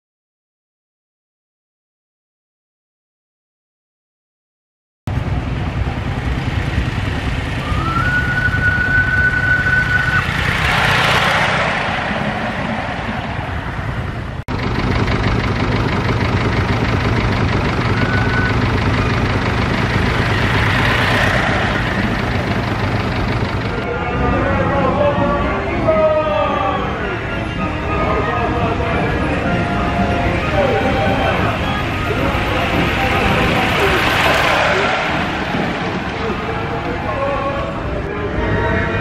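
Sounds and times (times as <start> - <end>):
miniature train running on track: 5.7 - 11.6, 14.5 - 24.0, 28.1 - 39.0
steam locomotive whistle: 7.6 - 11.0, 17.8 - 19.2.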